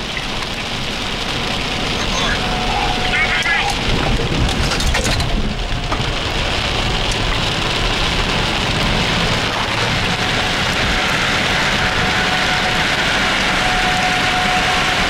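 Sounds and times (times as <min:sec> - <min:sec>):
tyres hissing on wet road: 0:00.0 - 0:04.4, 0:05.5 - 0:15.0
heavy rain on car roof: 0:00.0 - 0:15.0.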